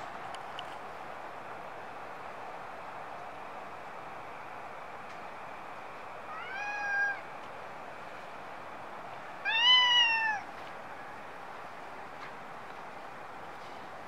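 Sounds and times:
steady background hiss: 0.0 - 14.0
cat meowing: 6.3 - 7.2, 9.4 - 10.5.

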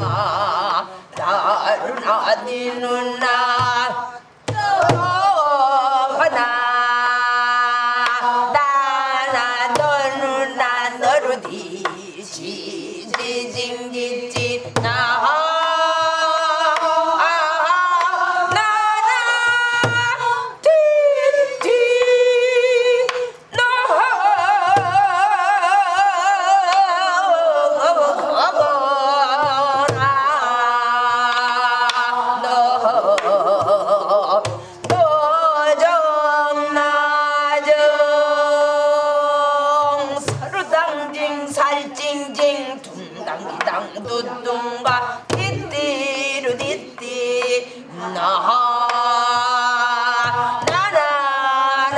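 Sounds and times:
woman singing with vibrato: 0.0 - 51.9.

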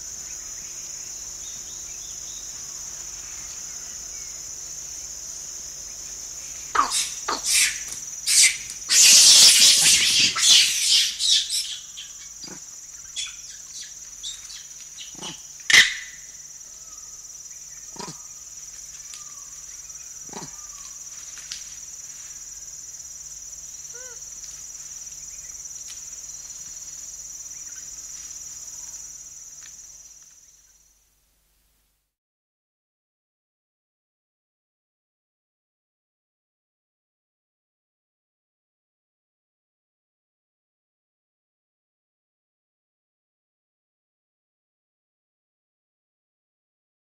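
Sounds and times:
high-pitched insect drone: 0.0 - 30.9
monkey calls: 6.7 - 16.2, 17.9 - 18.3, 20.2 - 21.0, 23.9 - 24.2
rustling and shaking of foliage: 21.0 - 22.5.

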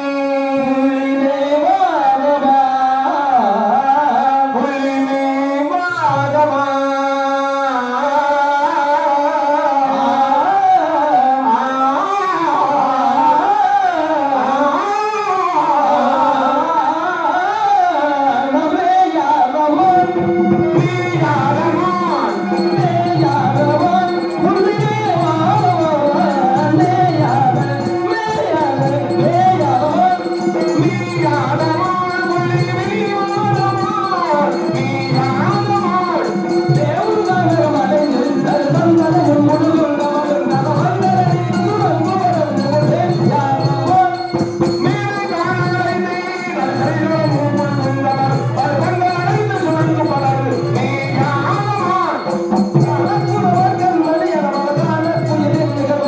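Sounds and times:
regular drum beat: 20.2 - 56.0
bright ticking percussion: 20.8 - 56.0
person singing ornamented melody: 20.8 - 56.0.

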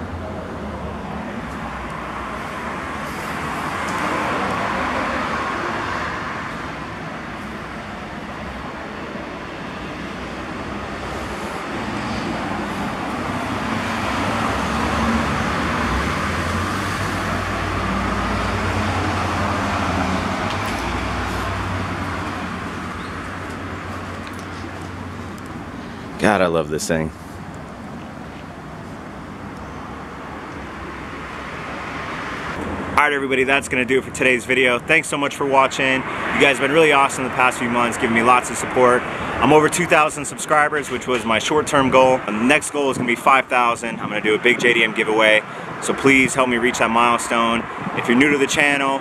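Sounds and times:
cars passing: 0.0 - 49.0.

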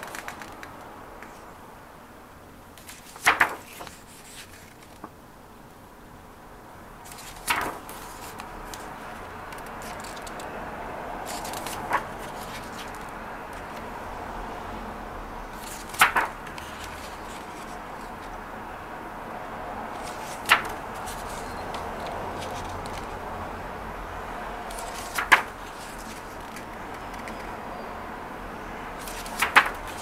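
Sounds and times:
book pages turning: 0.0 - 1.4, 2.8 - 5.1, 7.0 - 10.6, 11.2 - 13.9, 15.5 - 18.4, 19.9 - 23.2, 24.7 - 27.6, 29.0 - 30.0.

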